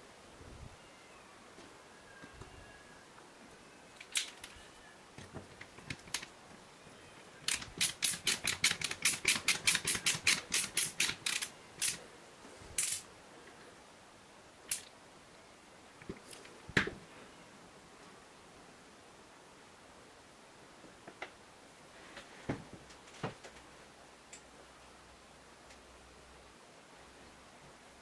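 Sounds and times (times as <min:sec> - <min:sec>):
screwdriver ratchet clicks: 0:07.4 - 0:12.0.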